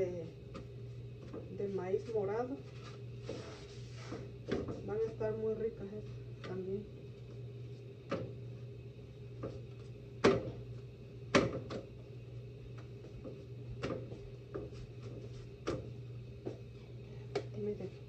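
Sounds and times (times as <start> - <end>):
steady low hum: 0.0 - 18.0
knocks of tortilla making: 8.0 - 8.4, 9.4 - 10.6, 11.3 - 12.0, 12.7 - 16.7.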